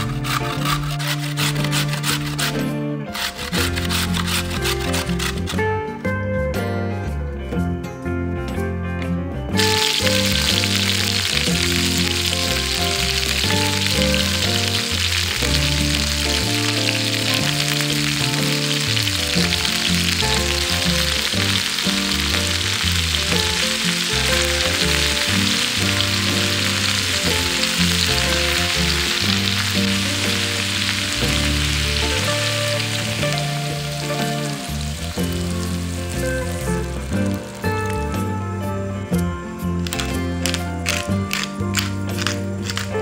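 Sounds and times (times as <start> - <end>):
background music: 0.0 - 43.0
food sizzling in oil: 9.6 - 38.2.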